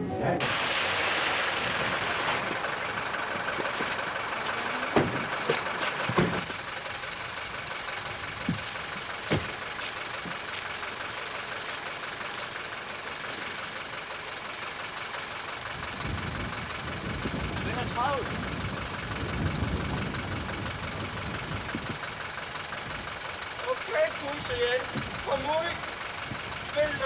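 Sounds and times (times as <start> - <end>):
car doors shutting: 4.8 - 6.6, 8.4 - 10.4.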